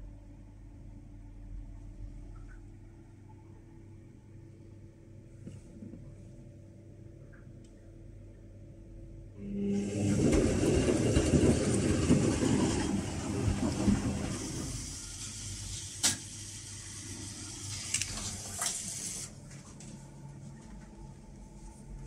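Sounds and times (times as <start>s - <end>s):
faint low hum: 0.0s - 18.6s
washing machine water sloshing: 9.4s - 19.9s.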